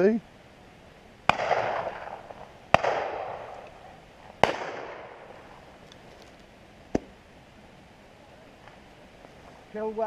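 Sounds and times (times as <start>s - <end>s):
shotgun shots with echo: 1.3s - 3.5s, 4.4s - 5.2s.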